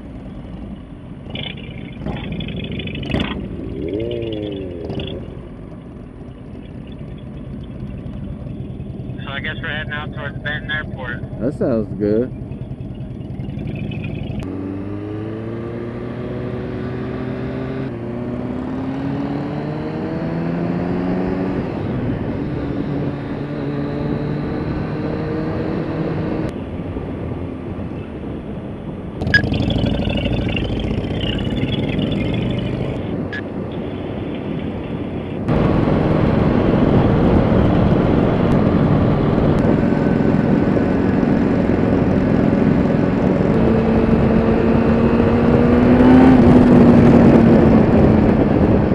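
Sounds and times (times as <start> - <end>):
motorcycle engine accelerating: 0.0 - 27.0, 29.2 - 33.6, 34.4 - 48.9
wind rush: 17.9 - 48.9.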